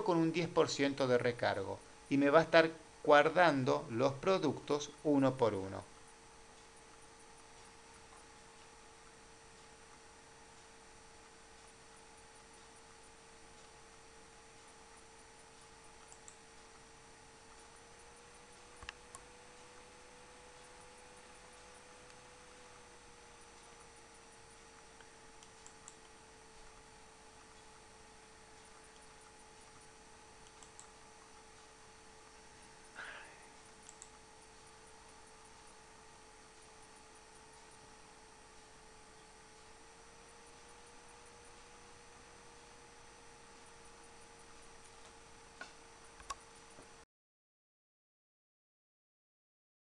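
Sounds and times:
faint electrical hum: 0:00.0 - 0:47.1
faint clicks: 0:14.6 - 0:16.7, 0:23.6 - 0:27.7, 0:28.6 - 0:34.2, 0:44.8 - 0:46.9.

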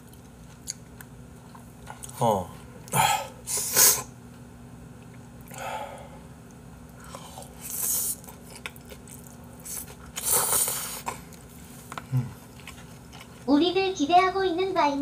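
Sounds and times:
chewing: 0:00.0 - 0:02.2, 0:06.4 - 0:13.5
person slurping noodles: 0:09.6 - 0:11.2.

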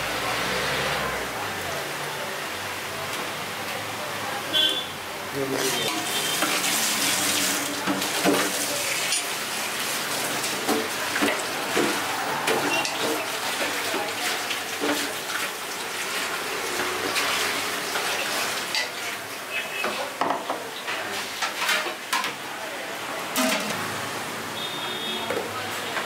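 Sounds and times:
kitchen noise hiss: 0:00.0 - 0:26.0
tongs clinking on steel pots: 0:05.7 - 0:06.6.

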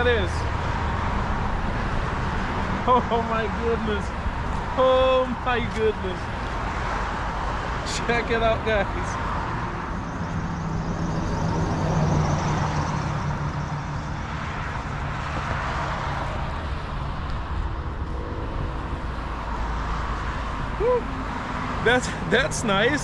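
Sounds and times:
traffic hum: 0:00.0 - 0:23.0.

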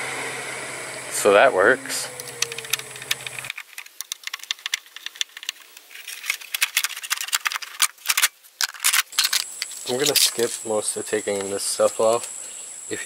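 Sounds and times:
plastic clicks and rattles: 0:02.2 - 0:10.4
screwdriver on plastic fasteners: 0:02.2 - 0:10.5.

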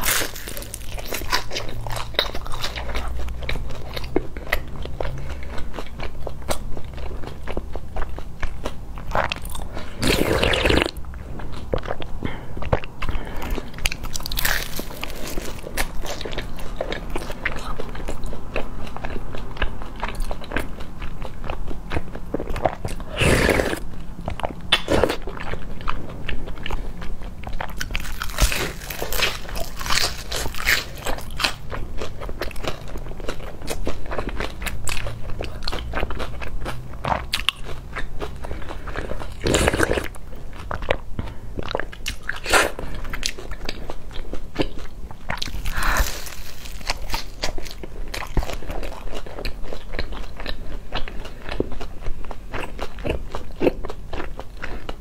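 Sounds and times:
crunching crisp pastry: 0:00.0 - 0:55.0
wet chewing: 0:00.0 - 0:55.0
slurping noodle soup: 0:09.8 - 0:11.0, 0:23.0 - 0:23.8.

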